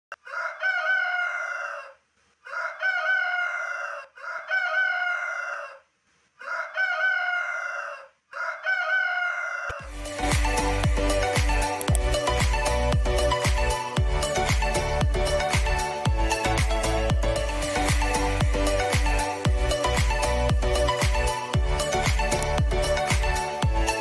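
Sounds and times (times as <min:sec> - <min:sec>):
rooster crowing: 0:00.1 - 0:09.9
upbeat electronic music: 0:09.8 - 0:24.0.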